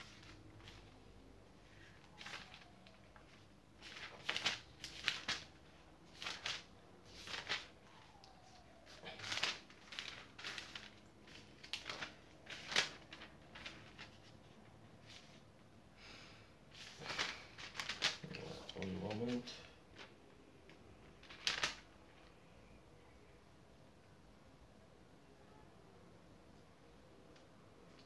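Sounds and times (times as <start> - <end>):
pages being flipped: 0.0 - 15.5, 16.7 - 22.3
paper rustling: 0.0 - 15.5, 16.7 - 22.4.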